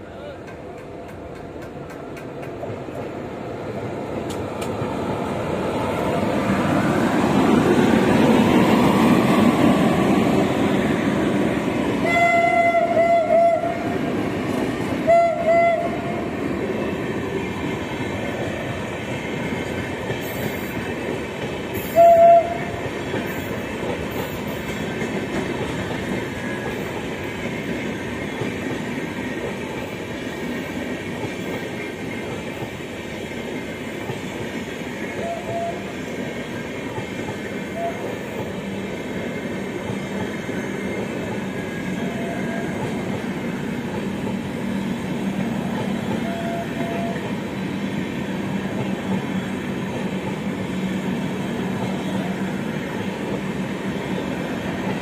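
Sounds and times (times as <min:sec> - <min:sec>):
train coaches clattering past: 0:00.0 - 0:55.0
train horn blasts: 0:12.0 - 0:13.9, 0:15.0 - 0:16.2, 0:21.8 - 0:22.7, 0:35.2 - 0:35.9, 0:37.7 - 0:38.1, 0:46.2 - 0:47.3.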